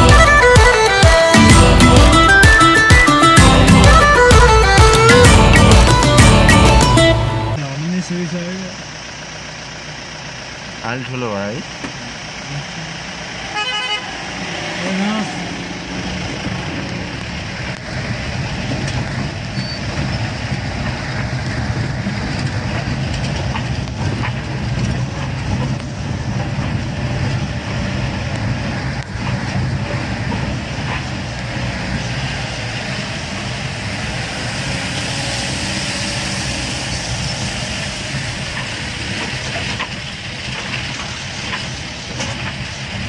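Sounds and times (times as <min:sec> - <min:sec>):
vehicle engine and road rumble: 0:00.0 - 0:43.0
vehicle body rattling over stones: 0:16.2 - 0:31.3, 0:37.0 - 0:43.0.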